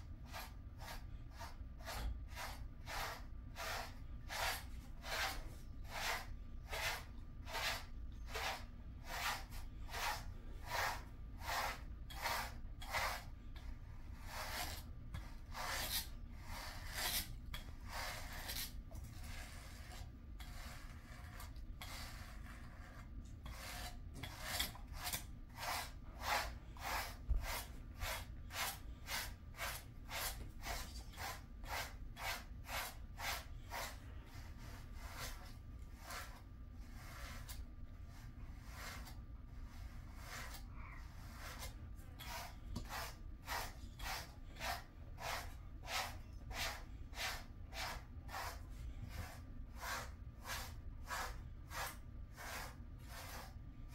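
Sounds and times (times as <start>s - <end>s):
brush strokes through dog coat: 0.3s - 53.6s.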